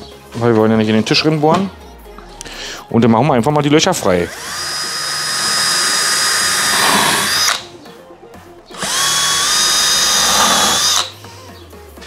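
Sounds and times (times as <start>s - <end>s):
cordless drill drilling chipboard: 4.3s - 7.6s, 8.8s - 11.1s.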